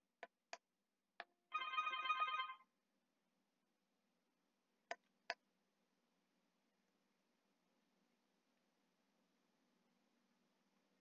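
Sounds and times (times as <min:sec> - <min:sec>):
intercom ringtone: 0:01.5 - 0:02.6.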